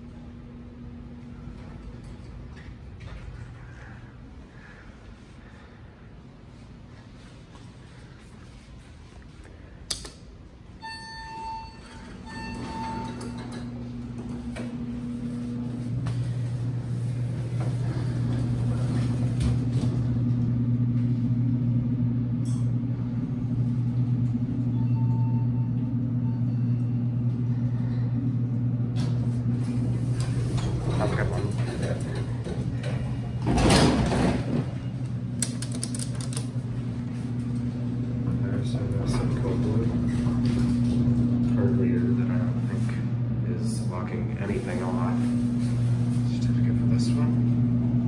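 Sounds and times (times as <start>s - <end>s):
elevator low hum: 0.0s - 48.0s
electronic chime tones: 10.8s - 13.4s
elevator click: 10.8s - 16.4s.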